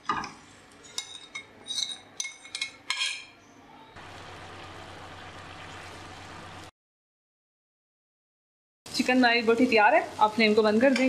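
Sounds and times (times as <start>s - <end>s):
chicken sizzling in oil: 4.0s - 6.7s, 8.9s - 11.0s.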